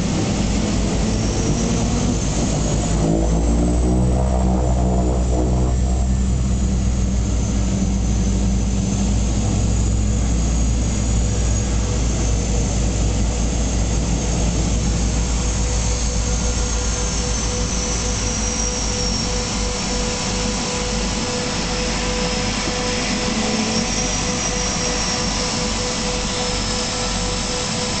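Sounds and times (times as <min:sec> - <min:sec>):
high engine whine: 0:00.0 - 0:28.0
propeller engine drone: 0:00.0 - 0:28.0.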